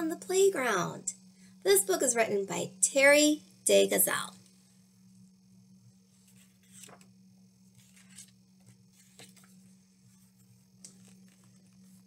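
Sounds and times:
low steady hum: 0:00.0 - 0:12.0
book pages turning: 0:06.1 - 0:12.0.

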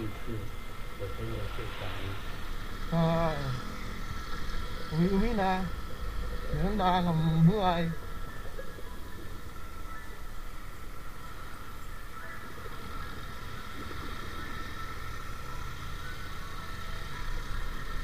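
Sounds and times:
faint steady whine: 0:00.0 - 0:18.0
motorcycle engine running: 0:12.9 - 0:18.0.

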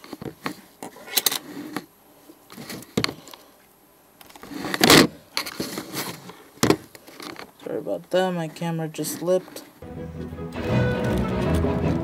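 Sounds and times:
cardboard scraping: 0:04.4 - 0:07.4.

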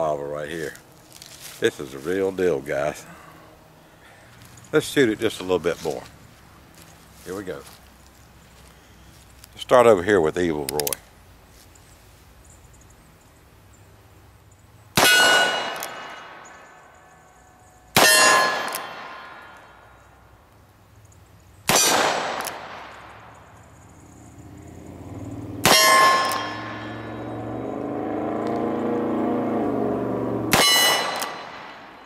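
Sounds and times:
steel target clanging: 0:18.0 - 0:19.6, 0:25.6 - 0:27.4, 0:30.5 - 0:31.8.

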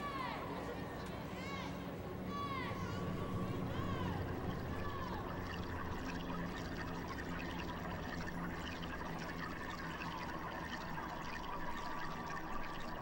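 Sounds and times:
murmur of stadium crowd: 0:00.0 - 0:06.1.

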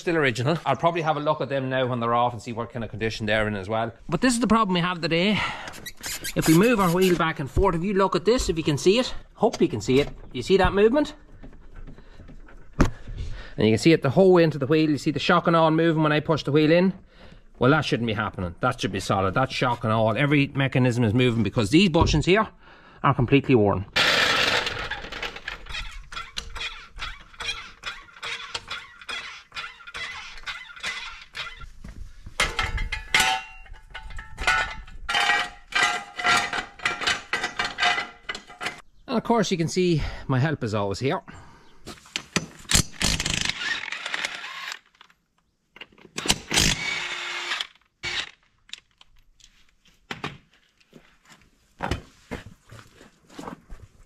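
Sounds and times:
impact wrench rattling: 0:24.0 - 0:31.7, 0:32.4 - 0:38.8, 0:42.2 - 0:45.1.

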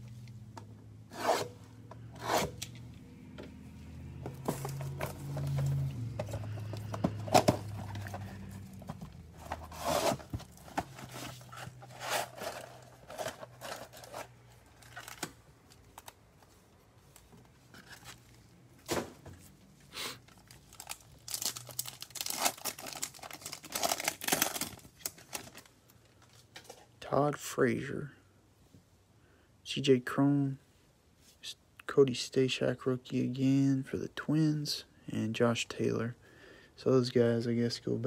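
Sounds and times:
cardboard scraping: 0:04.3 - 0:14.4
foil wrappers crinkling: 0:20.3 - 0:25.7
wrappers tearing: 0:20.4 - 0:25.7.

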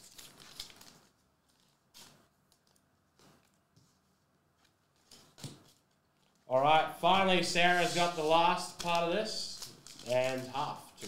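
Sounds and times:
trading cards rustling on a mat: 0:00.0 - 0:06.5, 0:07.6 - 0:10.7.

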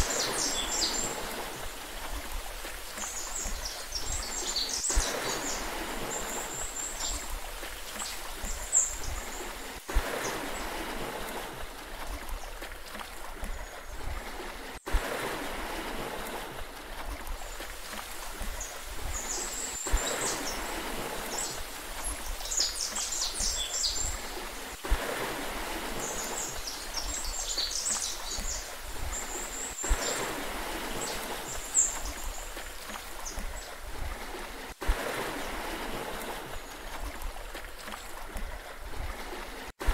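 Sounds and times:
small birds chirping: 0:00.0 - 0:01.2, 0:02.9 - 0:07.3, 0:18.5 - 0:24.3, 0:26.0 - 0:30.2
sea water washing: 0:00.0 - 0:39.9.

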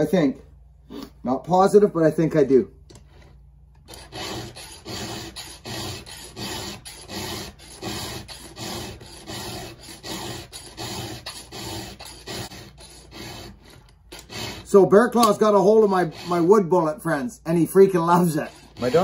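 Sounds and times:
file rasping on chainsaw chain: 0:03.9 - 0:16.7, 0:17.8 - 0:19.0.

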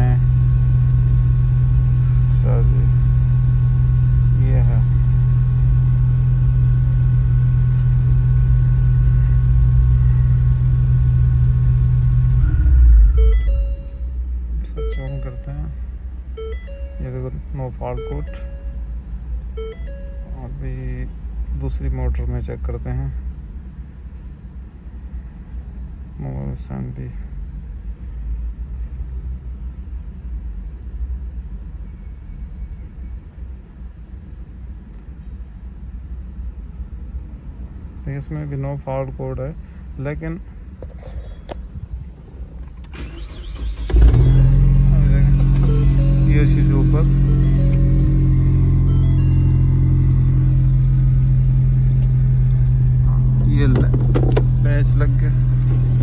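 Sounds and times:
car engine idling: 0:00.0 - 0:23.0, 0:42.4 - 0:56.0
faint high steady tone: 0:00.0 - 0:23.3, 0:44.3 - 0:56.0
faint steady whine: 0:00.0 - 0:56.0.

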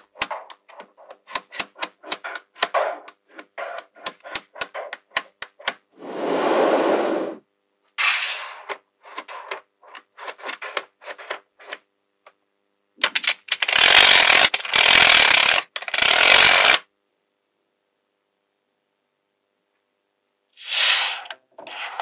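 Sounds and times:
magnetic balls clicking together: 0:00.0 - 0:05.8
balls scraping across hard surface: 0:06.0 - 0:07.4, 0:20.6 - 0:22.0.

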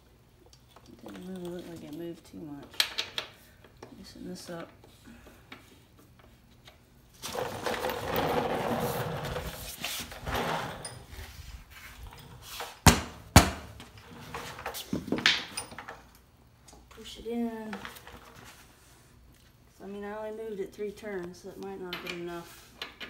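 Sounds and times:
tools scraping and rustling: 0:04.5 - 0:12.9, 0:13.6 - 0:16.2
sharp knocks: 0:12.9 - 0:13.8.

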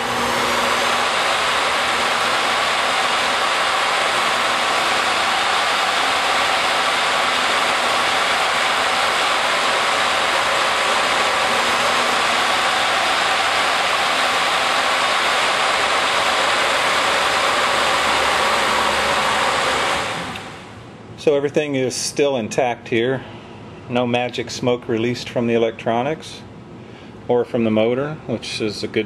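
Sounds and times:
electric motor whirring: 0:00.0 - 0:20.7.

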